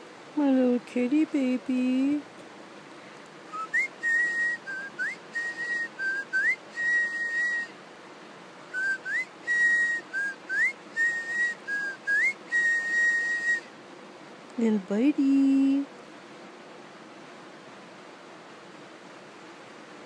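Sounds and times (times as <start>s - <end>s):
person whistling a tune: 3.6s - 7.7s, 8.8s - 13.7s.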